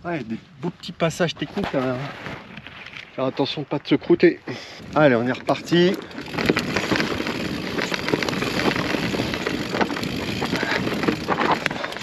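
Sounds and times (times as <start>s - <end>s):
bike knocking and rattling: 4.9s - 12.0s
tyres crunching over stones: 5.0s - 12.0s.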